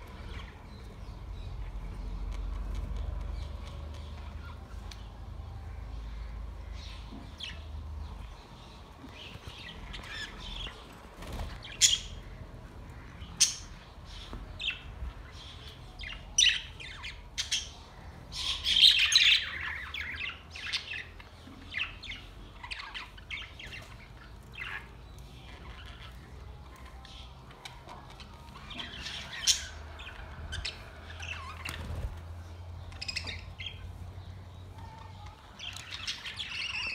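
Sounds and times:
budgerigars chirping and squawking: 9.1 - 32.1.

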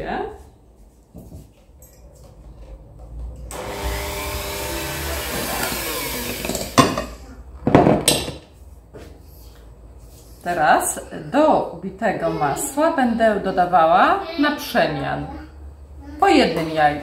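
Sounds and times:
electric hand mixer running: 3.5 - 6.8.

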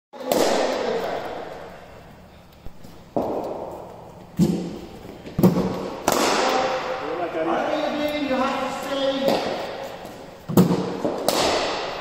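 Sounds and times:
cricket bat hitting ball: 0.2 - 1.0, 4.4 - 7.0, 9.2 - 9.8, 10.5 - 12.0.

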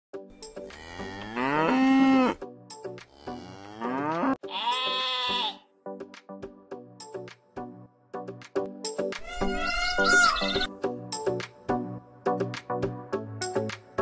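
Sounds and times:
light background music: 0.2 - 14.0
cattle mooing: 0.7 - 2.4, 3.2 - 5.6.

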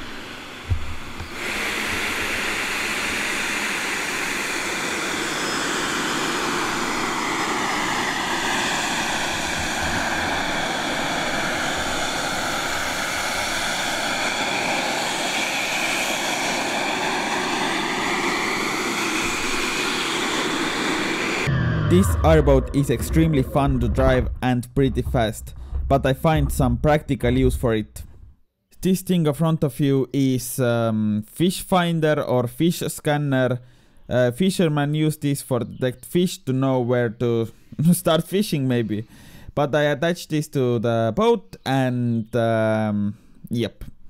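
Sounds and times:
ducted fans rushing: 0.0 - 28.3.

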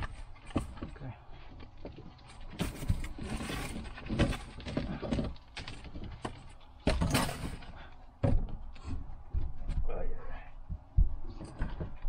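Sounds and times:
tools knocking and scraping: 2.6 - 9.1.

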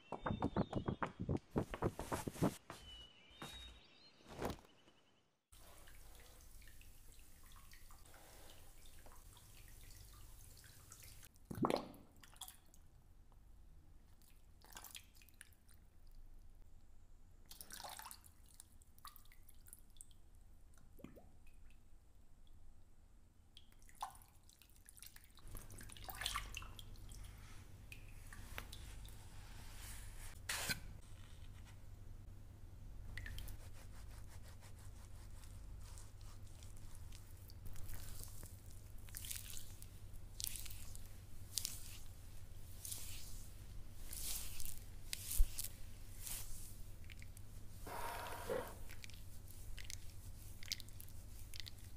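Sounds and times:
water dripping and splashing: 5.6 - 12.8, 23.5 - 27.2, 37.2 - 42.1.

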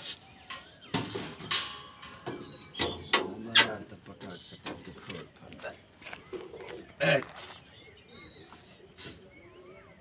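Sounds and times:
engine bonnet clicks and knocks: 0.5 - 5.4.

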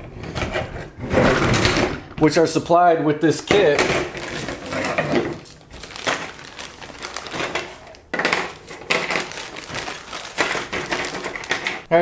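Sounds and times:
plastic parts rustling and crinkling: 3.5 - 11.9.

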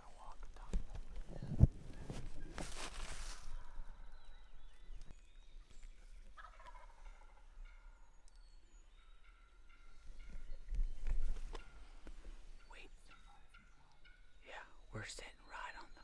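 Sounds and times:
turkey gobbling: 6.4 - 8.0.

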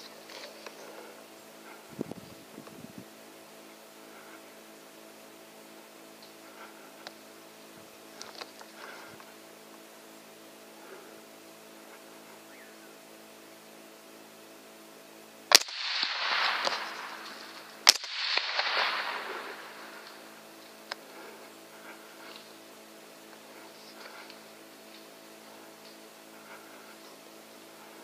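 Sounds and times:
rifle shots: 15.5 - 20.2.

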